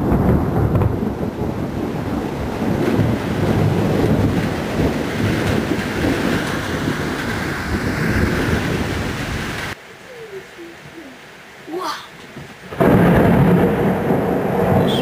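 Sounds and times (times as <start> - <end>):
steady rain: 0.0 - 15.0
thunder rumbling: 0.0 - 15.0.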